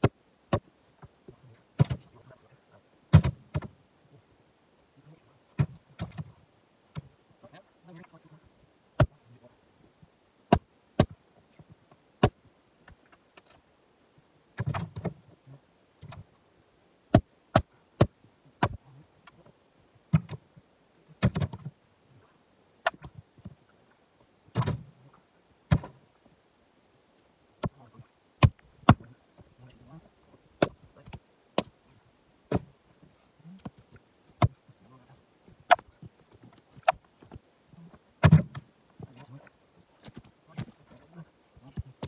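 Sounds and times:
axe splitting wood knocks: 0:00.0 - 0:00.7, 0:01.8 - 0:02.0, 0:03.1 - 0:03.7, 0:05.6 - 0:06.3, 0:10.5 - 0:11.2, 0:17.1 - 0:18.8, 0:21.2 - 0:21.7, 0:24.6 - 0:24.8, 0:25.7 - 0:26.0, 0:30.6 - 0:31.7, 0:32.5 - 0:32.7, 0:33.6 - 0:34.6, 0:35.7 - 0:35.9, 0:38.2 - 0:38.6
wood pieces landing thuds: 0:01.8 - 0:02.1, 0:03.1 - 0:03.7, 0:05.6 - 0:06.3, 0:21.2 - 0:21.7, 0:24.5 - 0:24.9, 0:25.7 - 0:26.0, 0:32.5 - 0:32.7, 0:35.6 - 0:37.4, 0:38.2 - 0:38.7.

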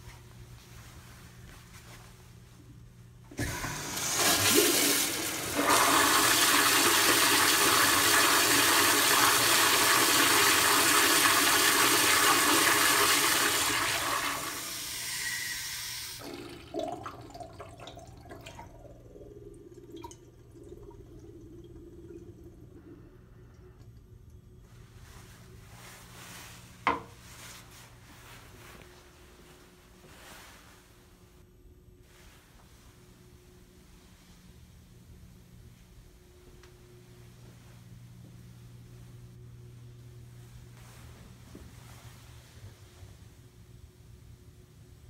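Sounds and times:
quiet running water: 0:03.2 - 0:30.5
toilet flushing: 0:03.3 - 0:25.3
knock: 0:26.9 - 0:27.1.

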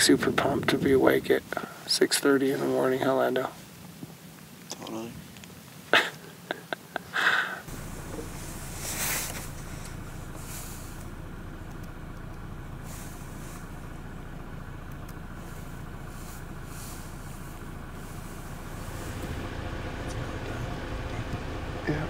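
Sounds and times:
road and engine rumble: 0:00.0 - 0:22.0
faint swishes: 0:07.8 - 0:11.1.

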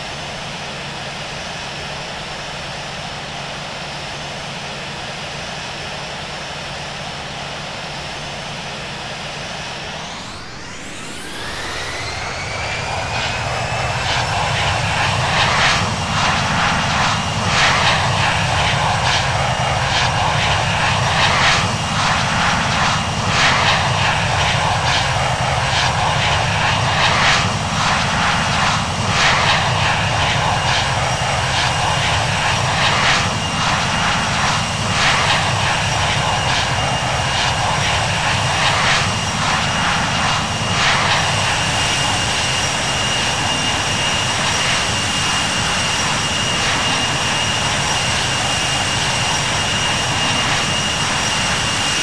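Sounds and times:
jet engines spooling up: 0:00.0 - 0:52.0
loud rushing roar: 0:09.5 - 0:52.0.

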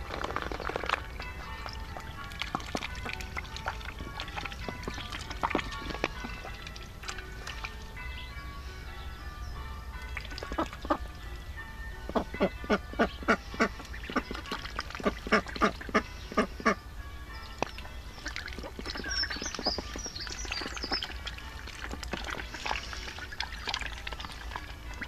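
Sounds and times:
ducks quacking: 0:10.4 - 0:11.0, 0:12.1 - 0:16.8, 0:17.6 - 0:25.0.

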